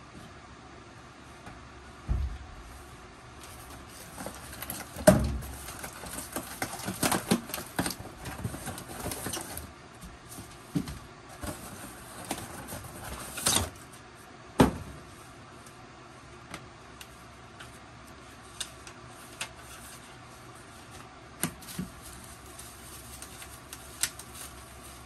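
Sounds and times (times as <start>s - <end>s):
loud thump: 2.0s - 2.6s
cardboard box rustling and scraping: 3.5s - 9.7s.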